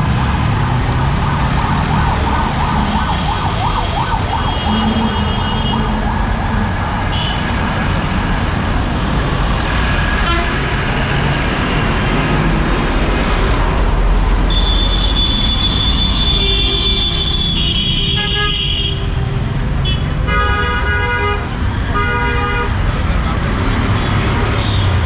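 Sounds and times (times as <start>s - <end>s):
traffic engines and road noise: 0.0s - 25.0s
high-pitched vehicle horn: 10.2s - 10.7s, 14.5s - 19.0s.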